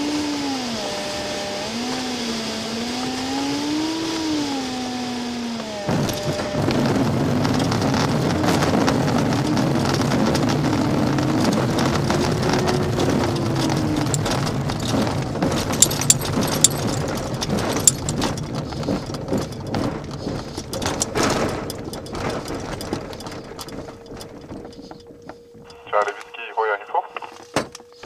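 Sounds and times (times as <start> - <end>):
wheel rumbling over grass: 5.4 - 26.0
sharp knocks and rattles: 11.4 - 25.7.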